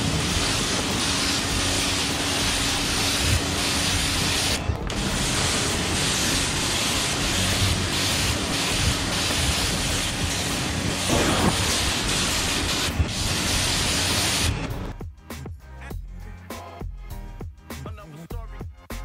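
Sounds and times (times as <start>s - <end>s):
pressure washer spray hissing: 0.0s - 14.8s.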